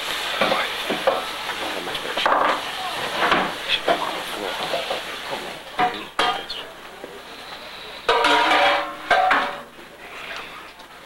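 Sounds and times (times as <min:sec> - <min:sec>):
metal pans clanking: 0:08.1 - 0:09.8.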